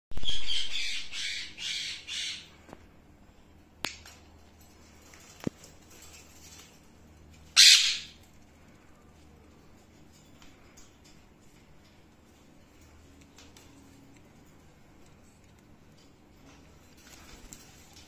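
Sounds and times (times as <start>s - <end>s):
parakeet squawk: 0.2s - 2.5s, 7.6s - 8.2s
parakeets screeching: 0.2s - 2.5s, 7.5s - 8.2s.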